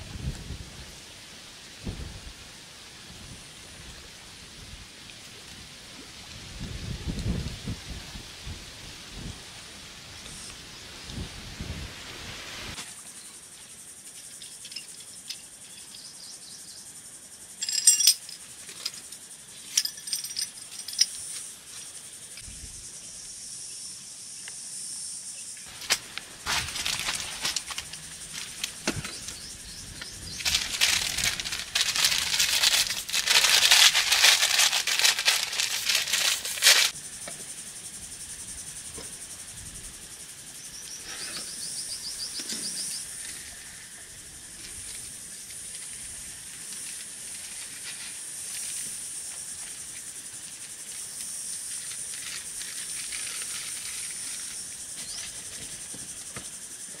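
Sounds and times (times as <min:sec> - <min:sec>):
high-pitched insect drone: 0:12.9 - 0:57.0
rustling and clicking: 0:25.7 - 0:36.9.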